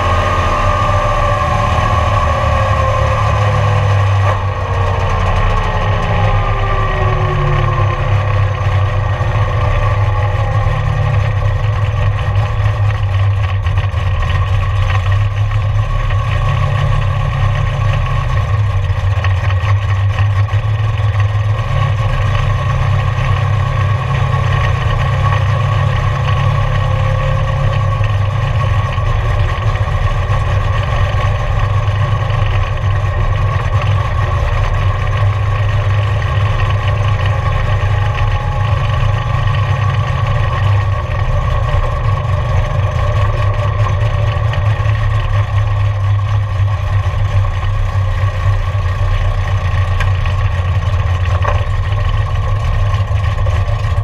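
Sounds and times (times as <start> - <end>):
race car engine droning: 0.0 - 54.0.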